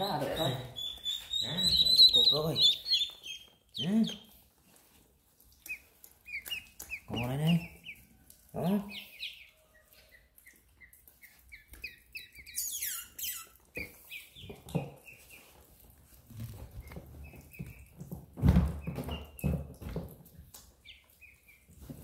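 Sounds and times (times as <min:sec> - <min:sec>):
ducklings peeping: 0:00.0 - 0:04.5, 0:05.4 - 0:19.9, 0:20.6 - 0:22.0
high duckling cry: 0:00.4 - 0:04.2.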